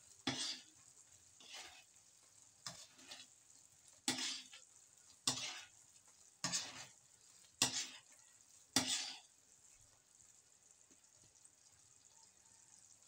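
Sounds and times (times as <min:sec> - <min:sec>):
metal spoon stirring in a wok: 0:00.0 - 0:09.4.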